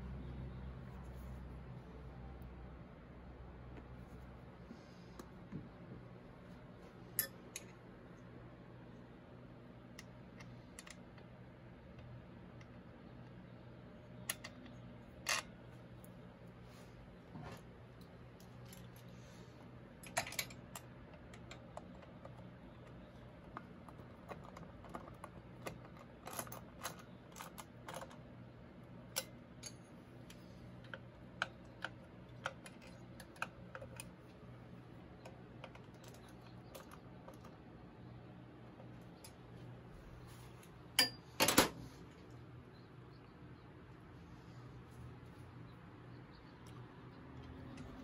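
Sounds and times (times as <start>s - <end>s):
steady low hum: 0.0s - 48.0s
clicks and taps of metal tools: 7.2s - 7.8s.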